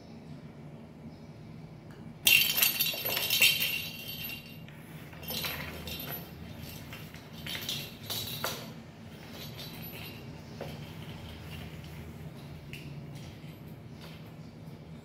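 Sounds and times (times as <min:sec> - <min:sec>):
toy ball jingling: 0:02.2 - 0:12.0.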